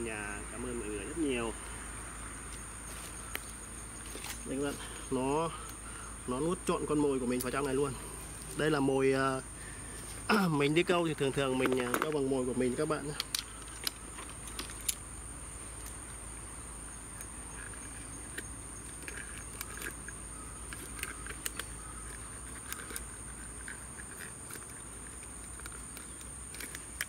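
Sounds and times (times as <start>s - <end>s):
high-pitched insect drone: 0.0s - 27.0s
small metallic clicks and rattles: 12.9s - 15.0s, 17.2s - 27.0s.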